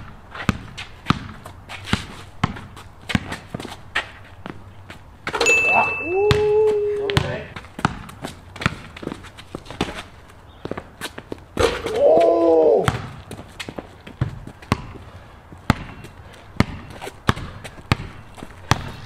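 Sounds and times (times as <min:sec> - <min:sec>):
basketball bouncing on concrete: 0:00.0 - 0:04.6, 0:05.2 - 0:10.0, 0:10.6 - 0:19.0
player crying out: 0:05.6 - 0:07.5, 0:11.8 - 0:12.9.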